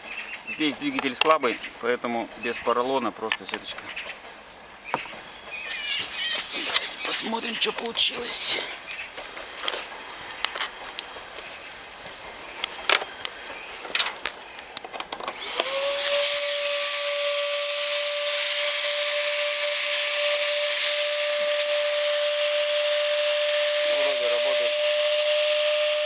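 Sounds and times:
blower motor whining: 0:05.4 - 0:26.0
handling knocks and clicks: 0:12.6 - 0:15.4.

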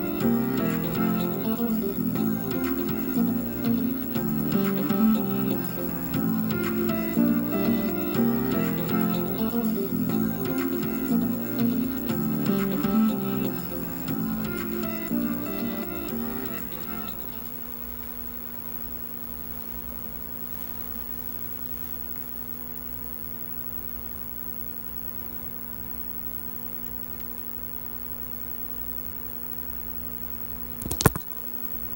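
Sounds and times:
guitar music: 0:00.0 - 0:17.4
electrical mains hum: 0:00.0 - 0:31.9
television hiss: 0:00.0 - 0:31.9.

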